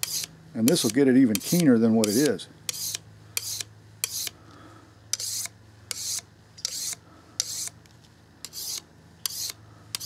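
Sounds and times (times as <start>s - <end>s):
knife rasping on sharpening stick: 0.0s - 4.4s, 5.2s - 7.8s, 8.4s - 10.0s
blade click: 0.6s - 2.4s.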